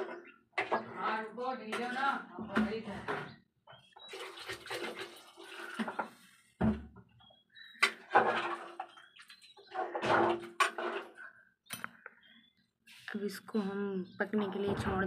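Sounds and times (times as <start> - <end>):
liquid sloshing in pot: 4.0 - 6.6, 7.8 - 11.2.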